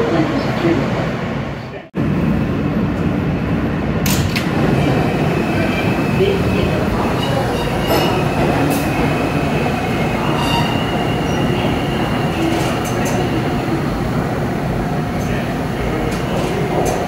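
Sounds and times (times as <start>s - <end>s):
subway wheels rumbling on rail: 0.0s - 17.0s
high wheel squeal: 7.0s - 12.8s.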